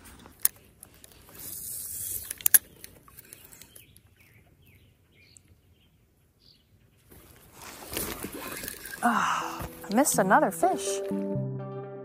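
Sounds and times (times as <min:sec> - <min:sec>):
fishing line hissing: 0:01.2 - 0:02.7
fishing reel clicks: 0:01.4 - 0:03.4.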